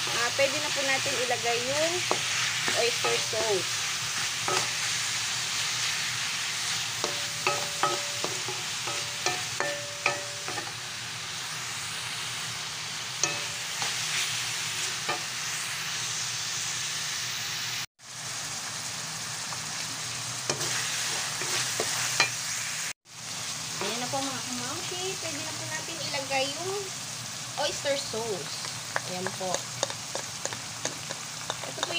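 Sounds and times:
spatula scraping a pan: 0.0s - 10.8s, 20.5s - 22.4s
meat sizzling in a pan: 0.0s - 31.9s.

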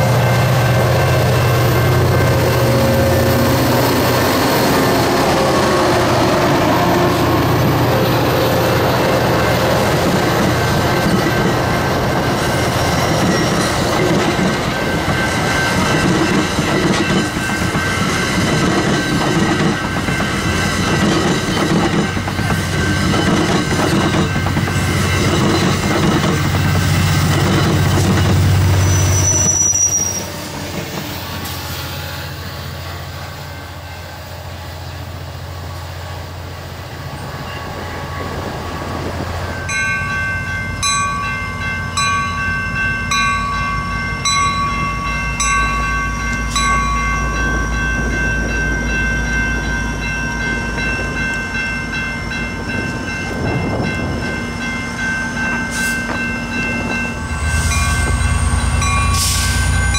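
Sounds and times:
diesel train rumble: 0.0s - 59.9s
passing train rumble: 0.0s - 59.9s
level crossing bell ringing: 39.5s - 59.9s.

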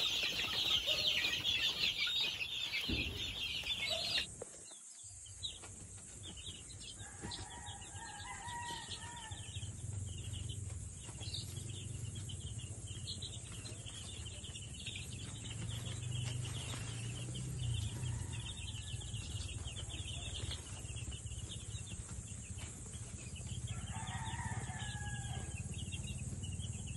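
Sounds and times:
chicks peeping: 0.0s - 26.9s
rooster crowing: 7.0s - 9.6s, 23.7s - 25.7s.

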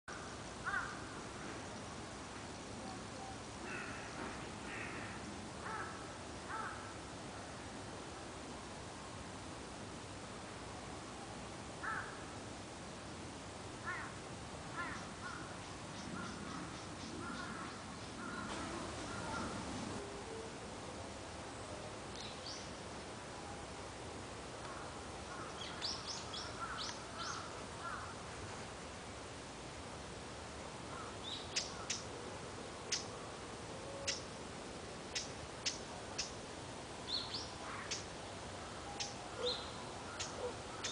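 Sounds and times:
faint steady hiss: 0.1s - 40.9s
repeated short bird notes: 38.9s - 40.9s.

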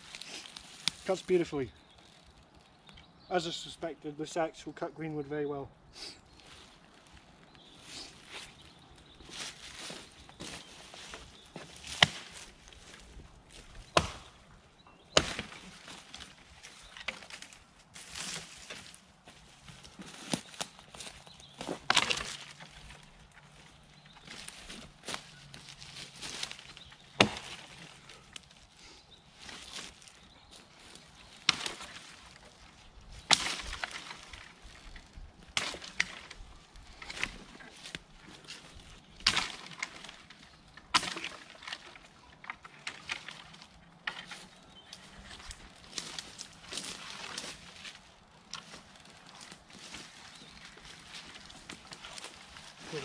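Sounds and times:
brush rustling: 6.0s - 53.0s
wood cracking: 8.2s - 28.6s, 29.4s - 53.0s
axe chopping wood: 11.9s - 12.4s, 13.9s - 14.4s, 15.1s - 15.6s, 27.2s - 27.7s
axe strikes into wood: 13.9s - 14.3s.

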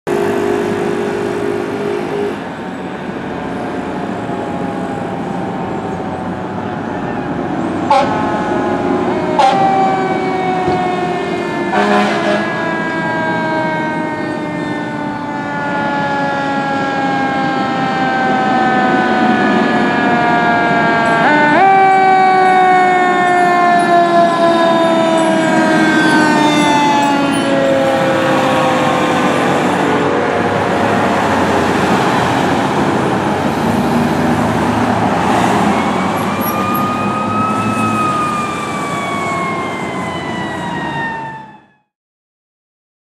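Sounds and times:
fire truck sirens wailing: 0.0s - 41.9s
horn blasts: 0.1s - 2.5s, 7.9s - 8.5s, 9.1s - 9.8s, 11.7s - 12.6s
truck engines rumbling: 0.1s - 41.6s.

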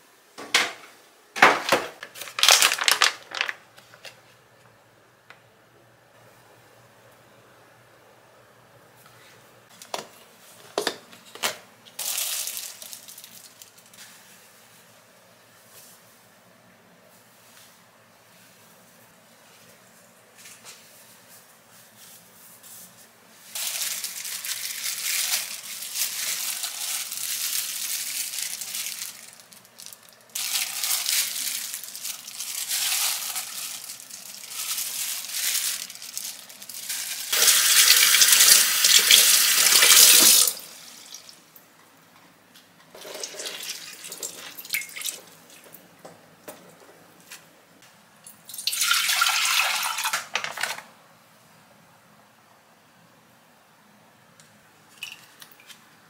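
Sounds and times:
plastic package crinkling: 1.6s - 4.2s, 11.3s - 14.0s, 23.5s - 40.6s.

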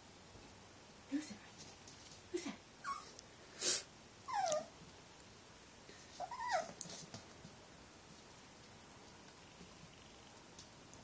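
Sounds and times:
puppy yipping and whining: 2.8s - 3.2s, 4.3s - 4.7s, 6.2s - 6.8s.

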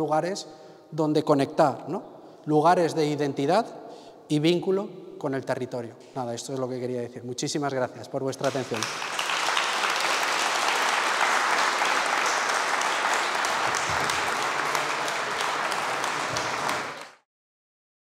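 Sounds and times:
audience applauding: 8.4s - 17.2s.

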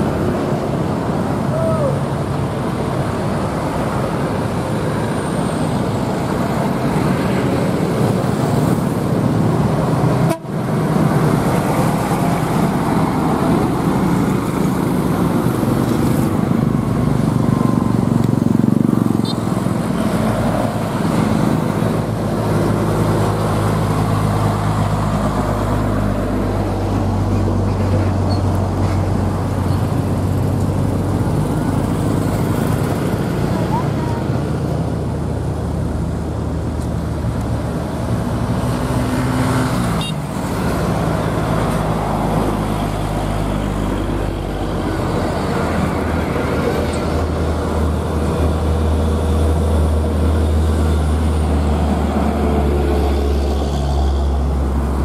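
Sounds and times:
trucks passing: 0.0s - 55.0s
motorcycles passing: 10.8s - 28.1s, 37.2s - 55.0s.

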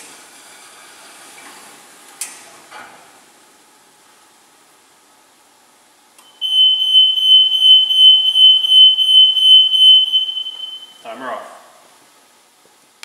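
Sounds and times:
high-pitched electronic buzzer: 6.4s - 11.0s.

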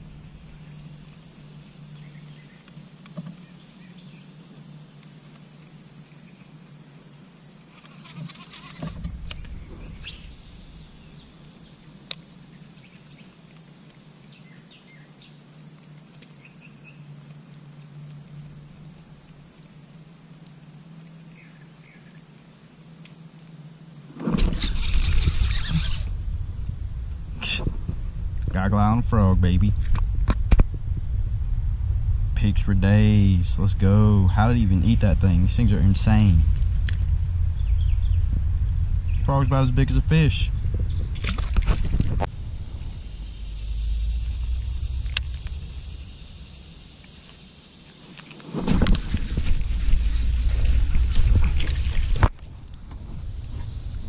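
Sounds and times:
low steady hum: 0.0s - 7.6s, 8.6s - 14.3s, 22.4s - 47.8s, 48.8s - 54.0s
insects droning: 0.0s - 54.0s
low rumble: 8.9s - 12.0s, 24.4s - 47.6s, 48.9s - 54.0s.

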